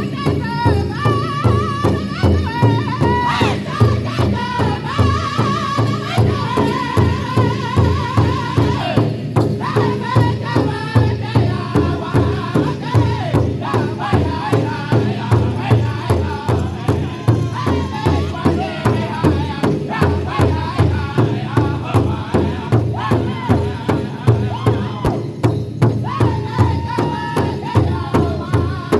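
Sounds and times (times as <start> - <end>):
group singing high-pitched chant: 0.0 - 25.4, 26.0 - 28.9
large hide drum beating: 0.0 - 28.9.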